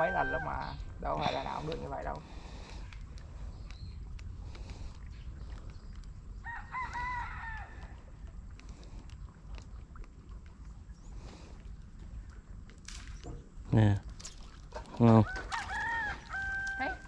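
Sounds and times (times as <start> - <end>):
rooster crowing: 0.0 - 0.8, 6.5 - 7.8, 15.2 - 17.0
wind rumble on microphone: 0.0 - 17.0.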